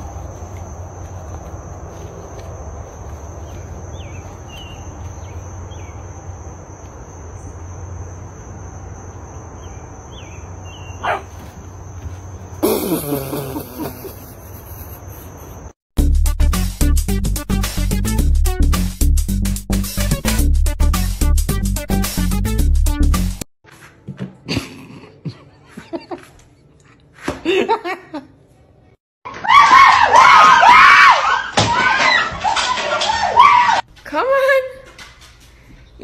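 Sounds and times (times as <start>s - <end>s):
music with a beat: 16.0s - 23.4s.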